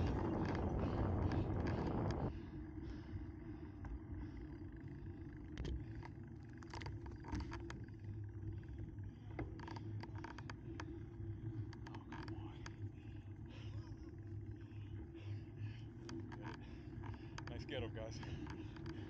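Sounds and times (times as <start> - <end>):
wind on microphone: 0.0 - 2.3
bicycle tyres rolling on asphalt: 0.0 - 19.0
bike clicks and rattles: 0.0 - 19.0.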